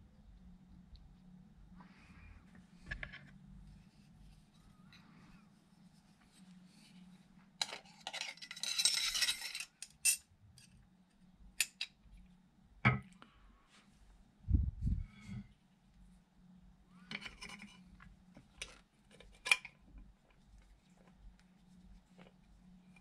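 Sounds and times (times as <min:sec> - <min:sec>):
faint low hum: 0:00.0 - 0:23.0
metal tools clinking and rattling: 0:07.6 - 0:10.2.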